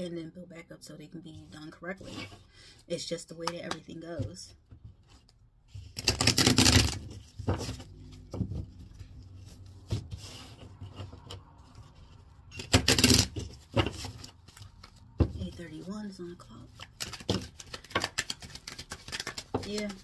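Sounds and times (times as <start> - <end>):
cards being shuffled: 5.1 - 15.9, 16.7 - 20.0.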